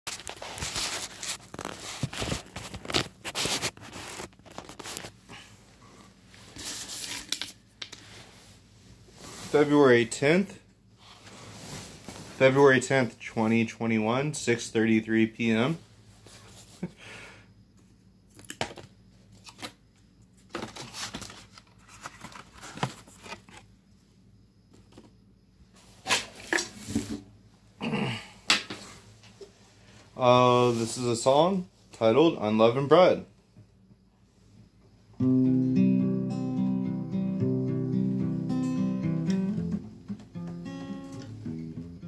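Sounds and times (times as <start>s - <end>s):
plastic bag crinkling: 0.1s - 5.1s.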